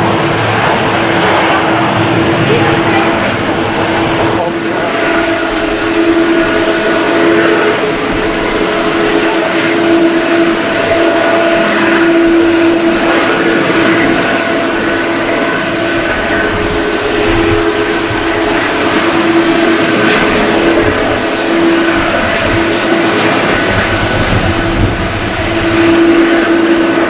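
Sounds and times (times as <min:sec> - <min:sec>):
jet engine whining tones: 0:00.0 - 0:27.0
jet engines loud drone: 0:00.0 - 0:27.0.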